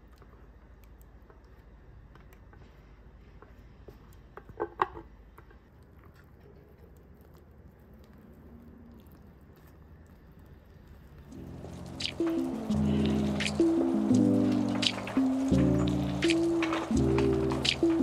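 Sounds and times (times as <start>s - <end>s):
spatula folding wet mixture: 5.2s - 18.0s.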